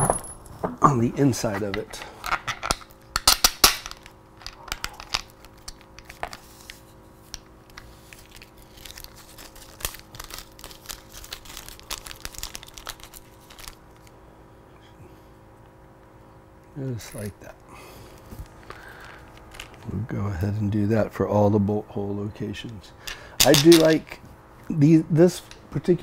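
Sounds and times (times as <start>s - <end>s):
tape crinkling and tearing: 2.6s - 14.1s, 18.1s - 19.9s.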